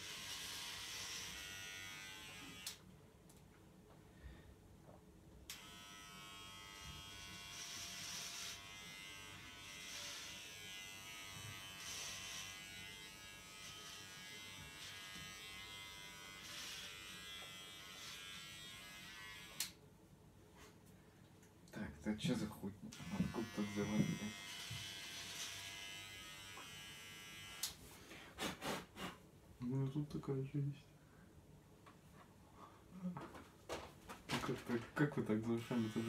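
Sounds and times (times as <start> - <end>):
electric hair clippers buzzing: 0.0 - 2.8, 5.5 - 19.8, 22.9 - 27.8, 35.4 - 36.0.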